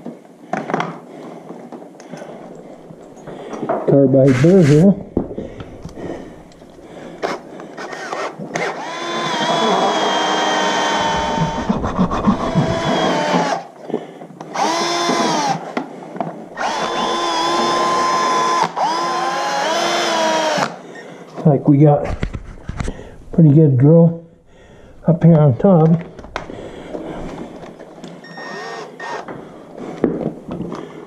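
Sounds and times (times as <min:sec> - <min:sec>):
cordless drill whining: 0:04.2 - 0:13.7, 0:14.5 - 0:15.8, 0:16.6 - 0:20.8, 0:26.2 - 0:30.1.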